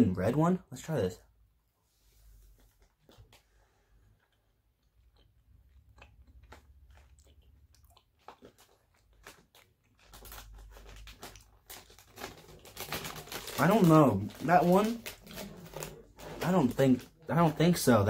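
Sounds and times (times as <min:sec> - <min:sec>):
faint chewing: 0:02.3 - 0:12.6.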